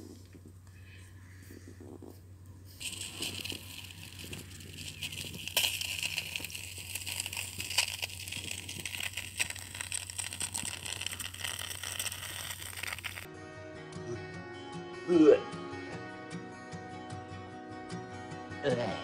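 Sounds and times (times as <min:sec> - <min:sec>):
liquid fizzing and popping: 0:02.8 - 0:13.3.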